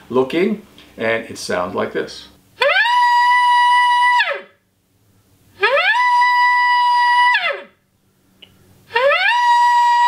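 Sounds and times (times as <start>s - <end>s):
elk call whistle: 2.6s - 4.5s, 5.6s - 7.8s, 8.9s - 10.0s.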